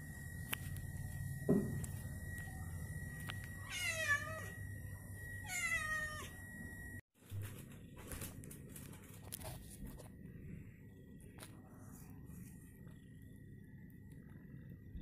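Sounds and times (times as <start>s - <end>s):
cat meowing: 3.6s - 4.6s, 5.4s - 6.3s.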